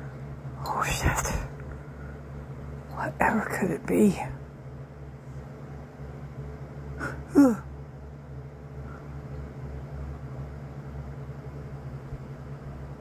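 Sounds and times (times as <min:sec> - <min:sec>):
steady low hum: 0:00.0 - 0:13.0
short falling vocal sound: 0:07.0 - 0:07.6.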